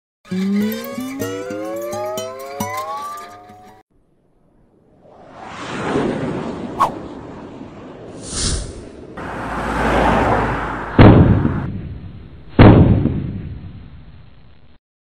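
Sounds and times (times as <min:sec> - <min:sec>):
whoosh: 0:04.6 - 0:11.9
short high hiss: 0:08.2 - 0:08.8
booming impacts: 0:10.9 - 0:14.0.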